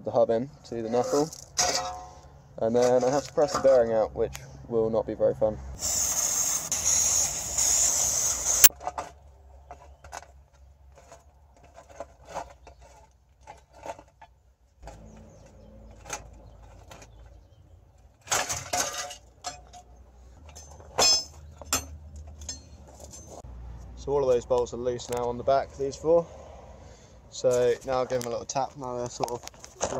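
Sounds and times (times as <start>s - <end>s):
ringing metallic clank: 1.6s - 2.2s, 20.5s - 23.4s
aerosol can hissing: 5.8s - 8.7s
wrench clinking on metal: 18.8s - 23.4s.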